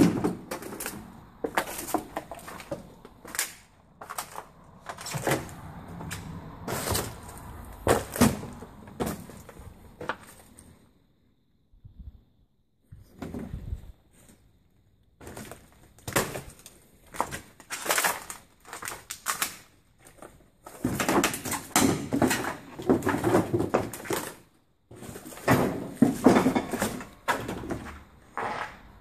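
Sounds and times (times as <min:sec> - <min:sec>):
footsteps crunching over debris: 0:00.0 - 0:10.7, 0:15.2 - 0:21.5.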